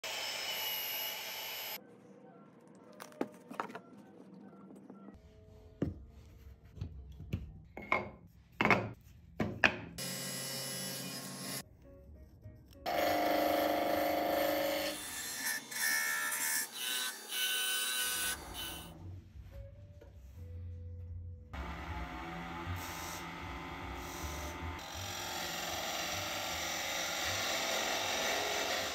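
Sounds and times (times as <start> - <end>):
turning tool cutting wood: 0.0 - 1.8, 12.9 - 18.8, 21.6 - 28.9
wood lathe spinning: 12.9 - 14.9, 21.6 - 28.9.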